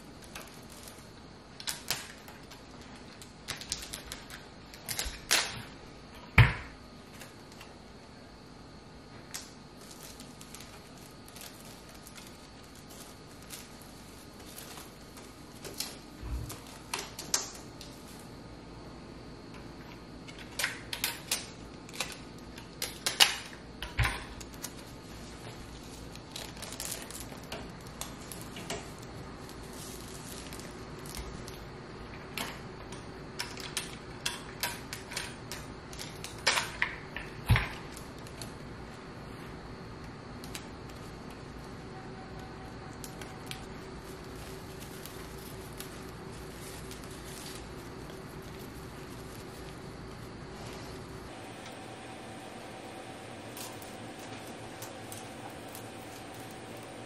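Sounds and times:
foil crinkling and rustling: 0.0 - 5.6, 9.3 - 18.4, 20.3 - 32.6, 33.4 - 38.8, 42.4 - 57.0
decorations clicking and tapping: 26.2 - 38.6.

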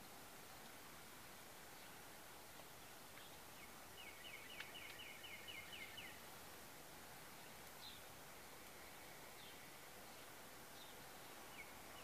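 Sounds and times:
faint steady hiss: 0.0 - 12.0
songbird singing: 0.0 - 12.0.

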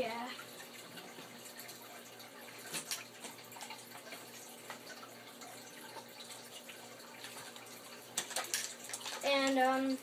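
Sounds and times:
clicks and rustles of handling: 7.2 - 9.7.

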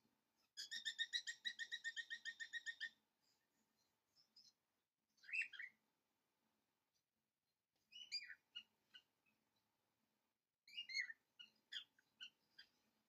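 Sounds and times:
small bird chirping: 0.4 - 4.6, 5.2 - 5.8, 7.8 - 9.7, 10.7 - 12.9.

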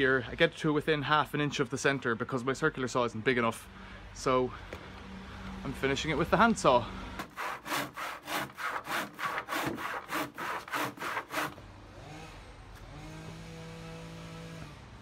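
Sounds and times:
handsaw cutting wood: 7.2 - 11.6.

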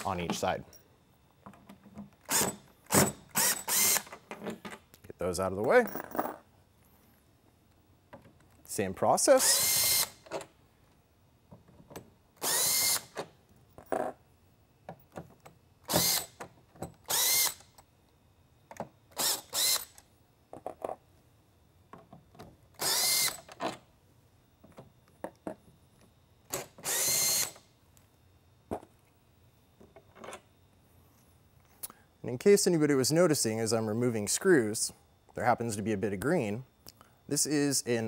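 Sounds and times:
cordless drill motor whine: 2.2 - 4.1, 9.4 - 10.3, 12.4 - 13.2, 15.9 - 16.4, 17.0 - 17.8, 19.1 - 20.0, 22.8 - 23.5, 26.6 - 27.7.

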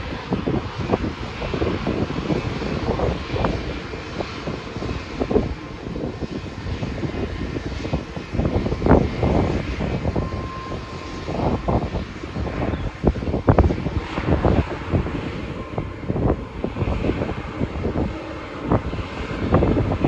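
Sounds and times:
jet engine rumble: 0.0 - 20.0
wind buffeting microphone: 0.0 - 20.0.

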